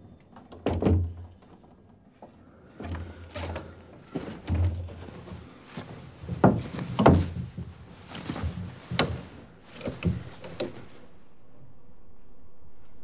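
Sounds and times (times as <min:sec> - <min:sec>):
wooden knocks and thumps: 0:00.4 - 0:02.0, 0:02.8 - 0:11.0.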